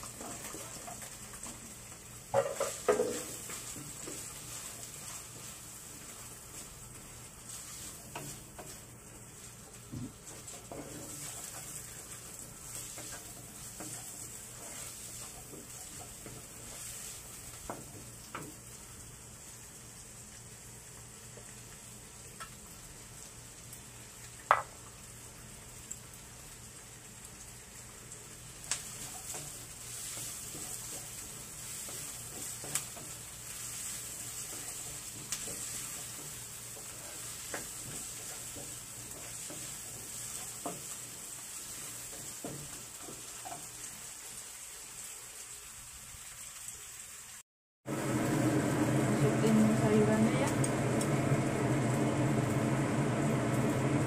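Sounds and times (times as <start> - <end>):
onion sizzling in oil: 0.0 - 54.0
spatula scraping and knocking pan: 2.3 - 5.6, 7.5 - 8.9, 9.7 - 18.6, 28.8 - 43.8.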